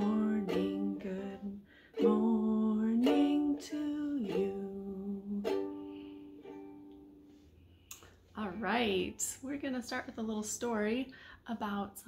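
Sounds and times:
woman singing: 0.0 - 5.8
strummed ukulele: 0.0 - 7.6.

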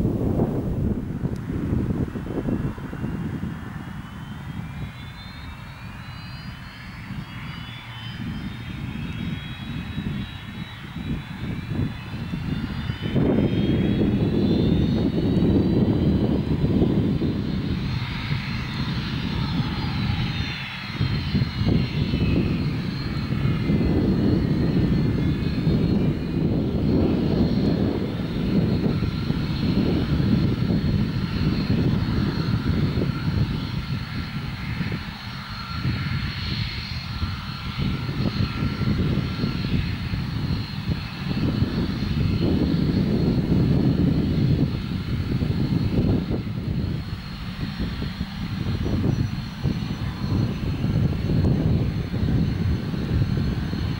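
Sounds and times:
helicopter turbine whine: 0.0 - 53.9
low rotor rumble: 0.0 - 53.9.

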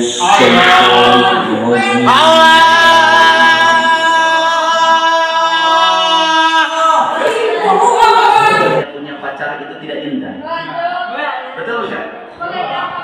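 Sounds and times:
man singing a long note: 0.0 - 6.8.

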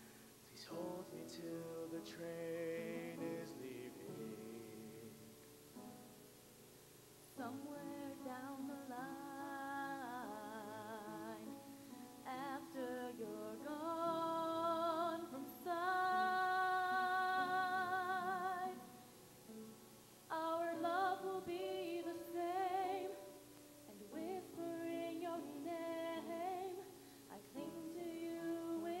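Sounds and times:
woman singing with vibrato: 7.4 - 19.0, 20.3 - 29.0.

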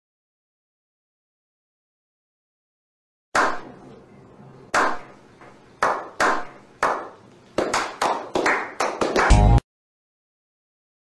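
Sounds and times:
people clapping slowly: 5.8 - 9.6.

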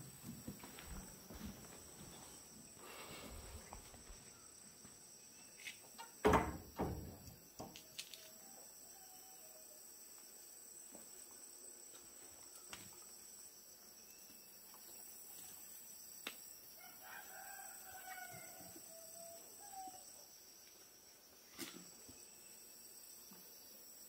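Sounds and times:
faint rooster crowing: 7.9 - 9.9, 16.7 - 20.3.

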